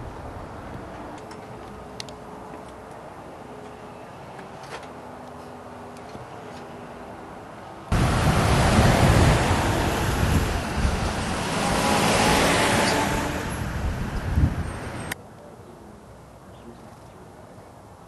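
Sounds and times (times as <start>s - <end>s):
wind noise on microphone: 0.0s - 1.0s, 7.9s - 15.2s
road traffic rushing: 0.0s - 15.2s.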